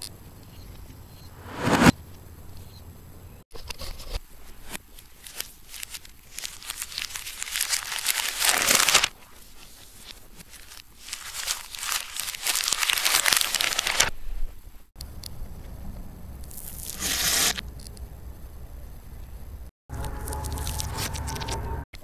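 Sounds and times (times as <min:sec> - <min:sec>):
paper crinkling: 0:03.8 - 0:14.3, 0:19.9 - 0:21.7.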